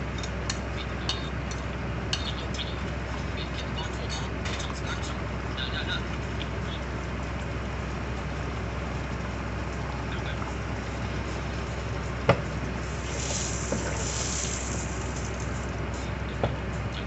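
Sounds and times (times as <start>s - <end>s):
egg sizzling in oil: 12.8s - 15.8s.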